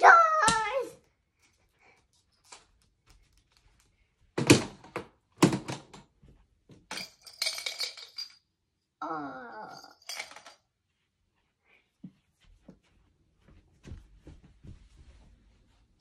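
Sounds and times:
child wavering vocal sound: 9.0s - 10.0s.

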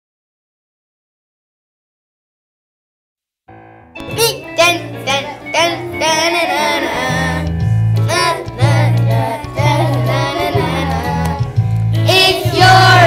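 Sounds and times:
instrumental backing track: 3.5s - 13.0s
low bass notes: 3.6s - 13.0s
children singing: 4.0s - 13.0s.

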